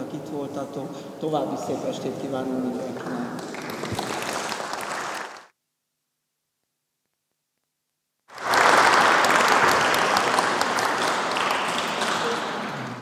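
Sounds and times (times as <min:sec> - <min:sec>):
audience applauding: 0:02.9 - 0:05.5, 0:08.3 - 0:13.0.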